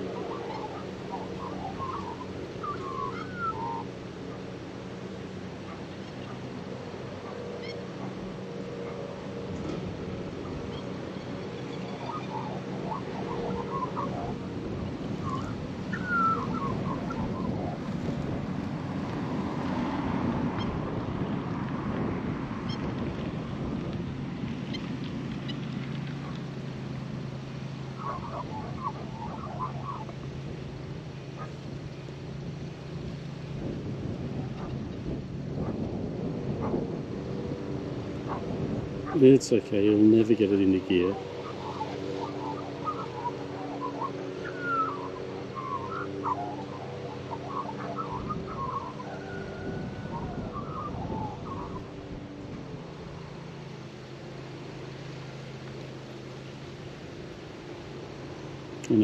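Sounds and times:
bird warbling: 0.0 - 4.5, 5.6 - 9.3, 10.3 - 17.9, 27.9 - 30.2, 39.1 - 52.0
wind noise: 5.6 - 26.3, 28.0 - 53.2.

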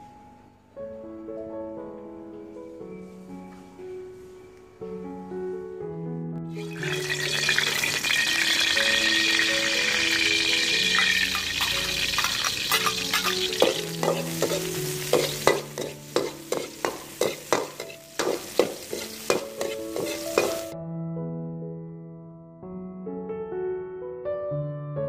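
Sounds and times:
soft background music: 0.0 - 25.0
hot oil sizzling in a wok: 6.5 - 20.8
metal ladle scraping a wok: 6.6 - 20.7.

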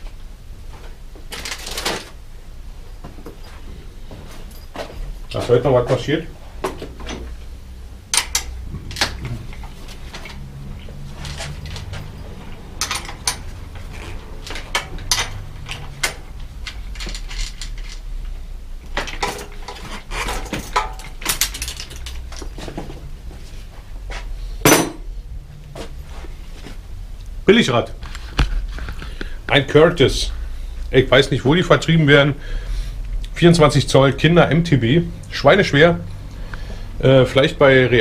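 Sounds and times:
steady low hum: 0.0 - 38.0
metal clinks and knocks from bicycle: 11.2 - 18.1, 18.9 - 22.6.

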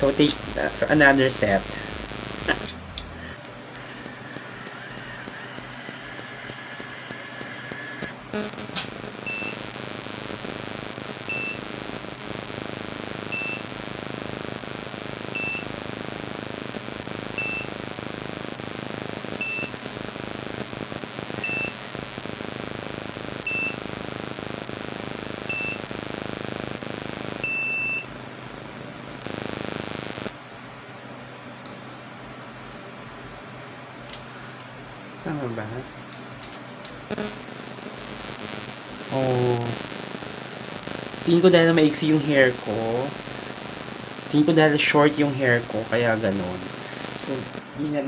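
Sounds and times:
longer beep: 11.3 - 11.6, 15.3 - 15.7, 17.4 - 17.7, 19.3 - 19.8, 27.4 - 28.1.

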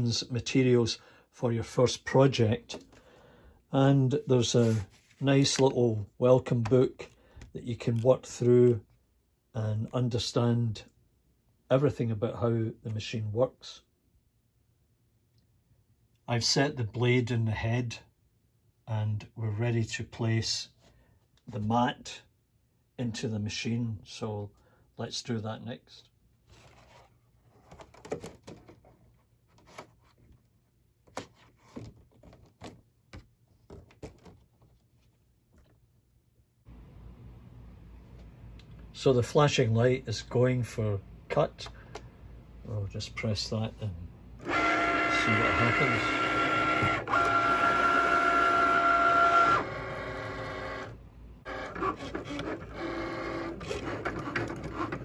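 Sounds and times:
quiet machine whirring: 42.7 - 55.0
cutting machine motor whine: 44.4 - 55.0.

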